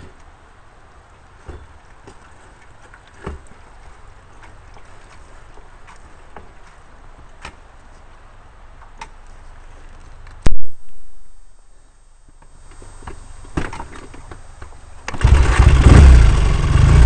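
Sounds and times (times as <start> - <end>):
faint low rumble: 7.8 - 13.6.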